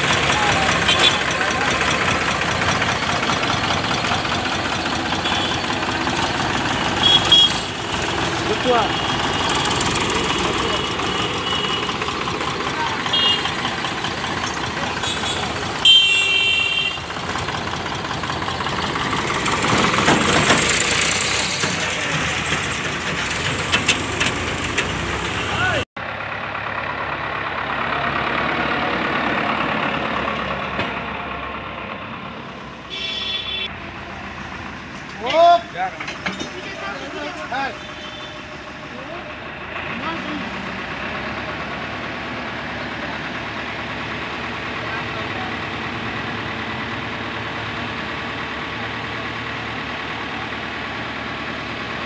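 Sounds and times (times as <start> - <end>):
tractor engine passing: 0.0 - 15.9, 16.5 - 32.9, 33.6 - 52.0.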